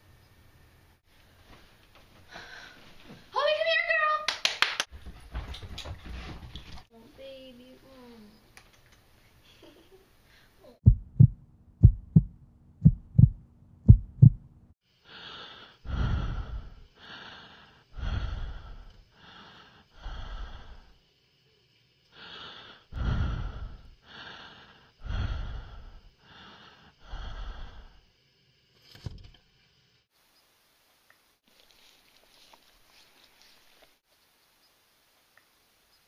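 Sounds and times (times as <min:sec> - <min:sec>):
heartbeat thumping: 0:10.8 - 0:14.6
heavy raspy breathing: 0:15.0 - 0:21.0, 0:22.1 - 0:28.1.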